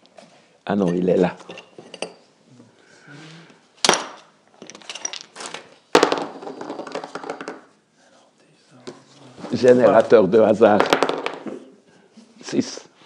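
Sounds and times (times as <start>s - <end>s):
objects clattering: 3.8s - 7.8s.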